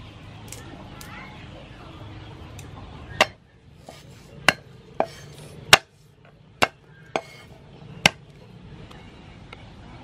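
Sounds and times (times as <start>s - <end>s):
knife knocking on wooden block: 6.6s - 7.4s.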